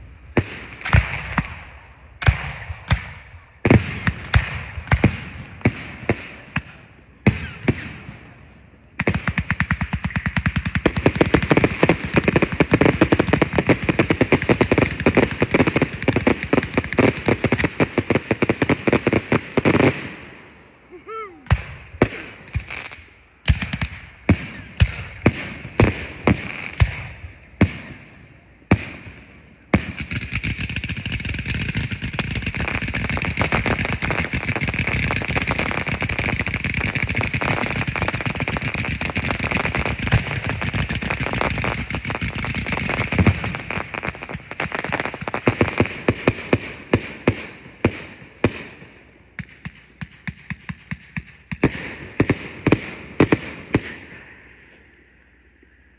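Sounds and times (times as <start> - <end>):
firework bangs: 0.0 - 20.6, 21.5 - 54.3
dense firework crackling: 0.0 - 28.1, 28.7 - 54.3
rapid firework barrage: 0.0 - 54.4.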